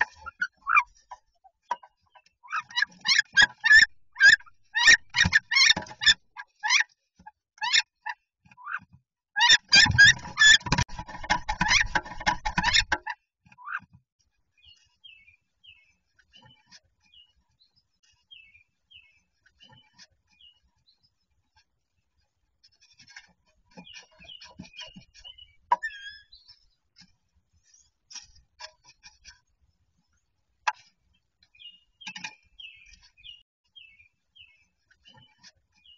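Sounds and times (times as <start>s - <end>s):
wings clattering against wooden box: 9.7s - 13.0s.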